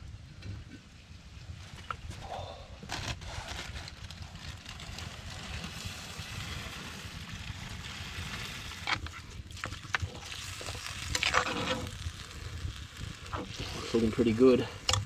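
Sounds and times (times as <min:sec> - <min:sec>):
curry bubbling and sizzling in pot: 0:04.0 - 0:15.0.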